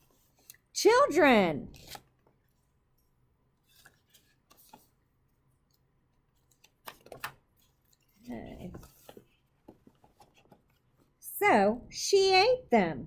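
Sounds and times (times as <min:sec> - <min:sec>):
book page turning: 0:01.7 - 0:02.3, 0:03.6 - 0:05.0, 0:06.3 - 0:11.1
paper handling: 0:03.6 - 0:05.0, 0:06.3 - 0:11.1.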